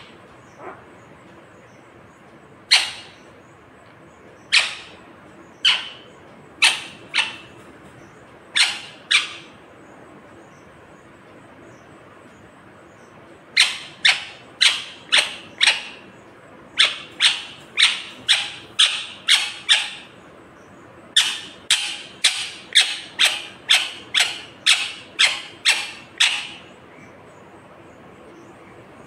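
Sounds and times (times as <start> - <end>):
parakeet calling sharply: 2.7 - 3.2, 5.6 - 6.0.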